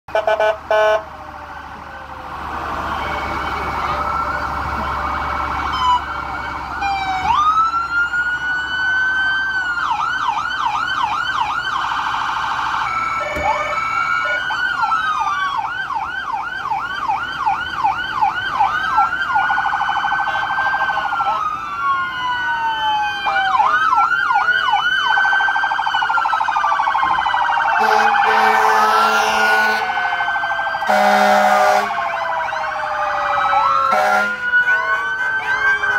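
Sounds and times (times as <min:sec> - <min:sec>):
sirens wailing: 0:00.1 - 0:35.9
sirens yelping: 0:00.1 - 0:35.9.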